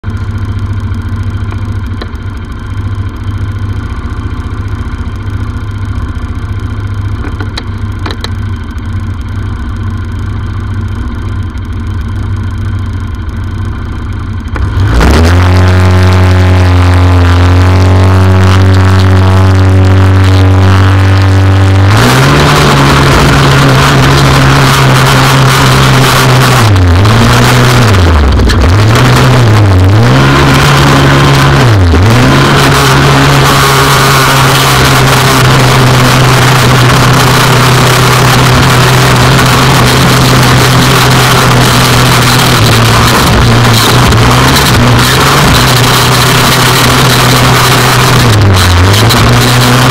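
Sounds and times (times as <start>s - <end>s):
race buggy engine revving: 14.4s - 49.9s.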